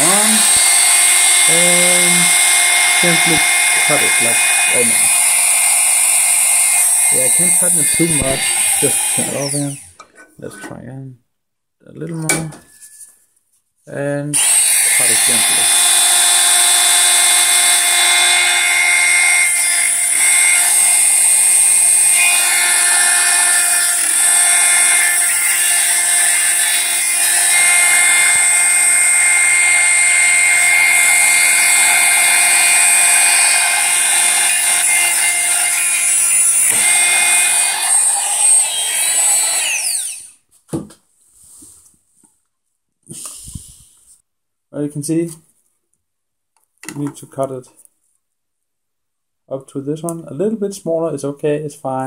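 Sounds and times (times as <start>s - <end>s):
rotary tool whining while cutting: 0.0s - 9.9s, 14.4s - 40.4s.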